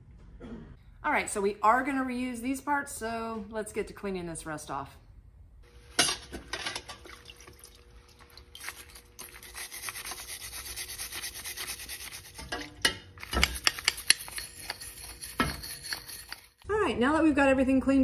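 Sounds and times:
stiff brush scrubbing metal: 0:08.6 - 0:16.6.

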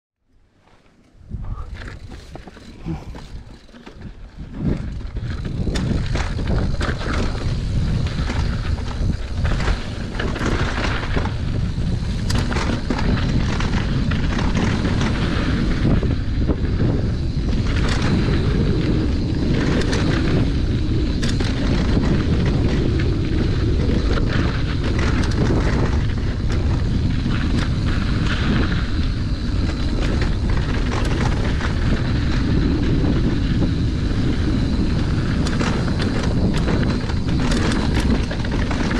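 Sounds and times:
bike tyres rolling on dirt: 0:00.2 - 0:38.9
bike rattling over bumps: 0:00.4 - 0:38.9
wind rumbling on microphone: 0:00.4 - 0:38.9.

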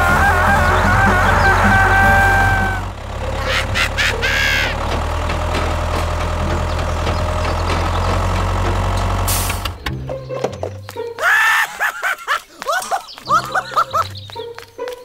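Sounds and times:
music: 0:00.0 - 0:02.9, 0:09.8 - 0:11.2
toy tractor engine rumble: 0:00.0 - 0:10.7.

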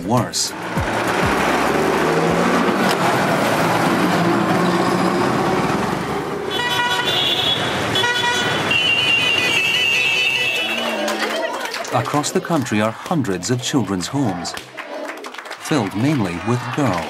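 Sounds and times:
traffic engines din: 0:00.0 - 0:17.0
vehicle horns honking: 0:06.4 - 0:11.4.

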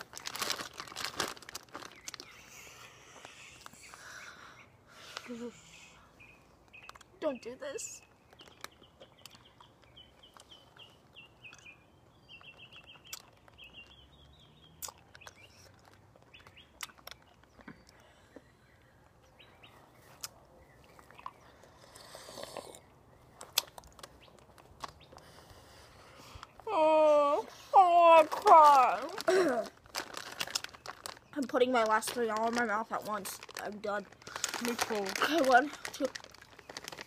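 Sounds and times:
small bird chirping: 0:01.7 - 0:26.7
mouth clicks sucking candy: 0:21.2 - 0:24.0.

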